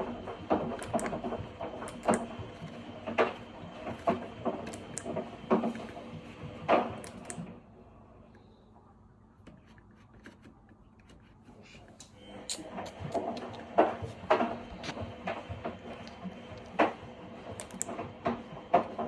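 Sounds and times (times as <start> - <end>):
rotary dial clicking: 0.0 - 6.0, 17.5 - 18.0.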